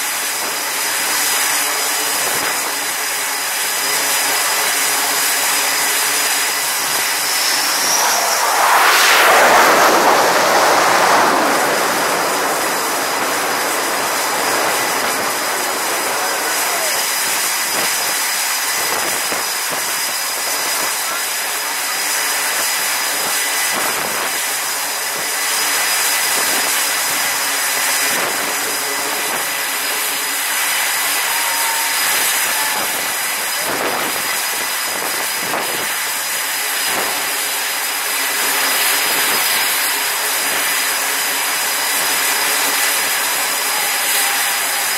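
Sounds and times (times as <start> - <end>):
jet engine rushing noise: 5.5 - 18.0
jet engine surge: 5.7 - 18.0.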